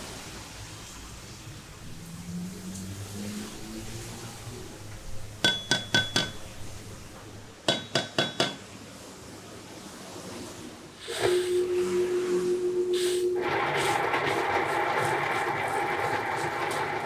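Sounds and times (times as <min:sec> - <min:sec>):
grinding wheel motor humming: 0:11.1 - 0:17.0.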